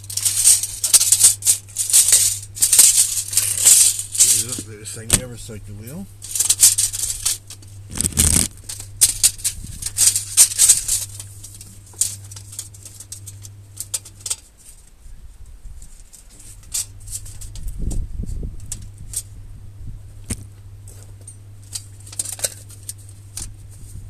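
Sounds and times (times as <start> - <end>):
tape measure blade rattling: 0.0 - 5.4, 6.2 - 14.4, 21.7 - 23.5.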